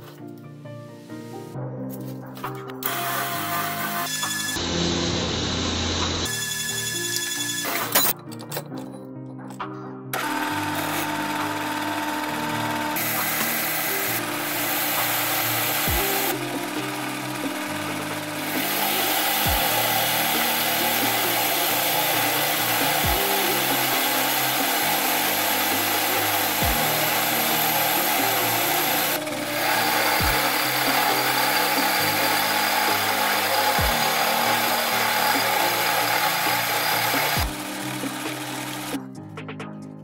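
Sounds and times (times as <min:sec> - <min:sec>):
metal lathe cutting: 0:02.8 - 0:07.8, 0:10.2 - 0:39.0
background music with bass line: 0:12.6 - 0:40.0.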